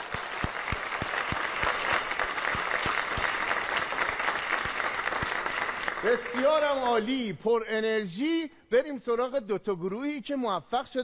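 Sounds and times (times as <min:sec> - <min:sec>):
audience applauding: 0:00.0 - 0:07.2.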